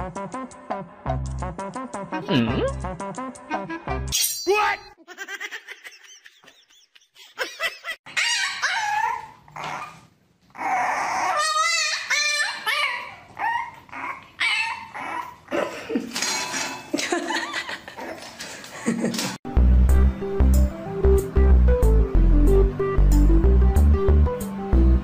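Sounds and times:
puppy yelping and whining: 8.1 - 15.5.

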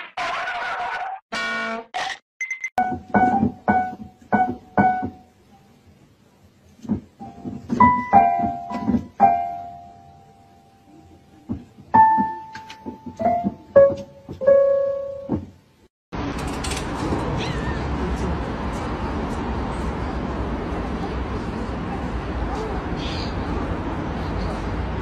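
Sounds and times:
keyboard notes: 2.8 - 5.7, 12.0 - 15.4
rushing background noise: 16.2 - 25.0.

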